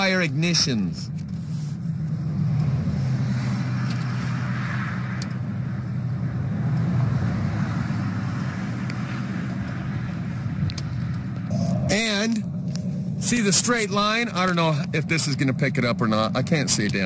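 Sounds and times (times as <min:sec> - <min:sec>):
car engine humming: 0:00.0 - 0:17.0.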